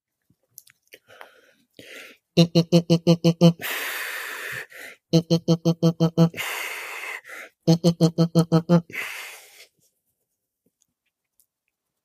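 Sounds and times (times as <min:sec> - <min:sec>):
man making rapid vocal pulses: 0:02.0 - 0:09.6.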